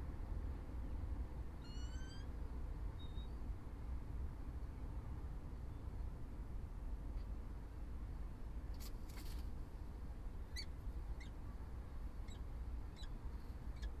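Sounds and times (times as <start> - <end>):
steady low hum: 0.0 - 14.0
brief rustle: 8.7 - 9.6.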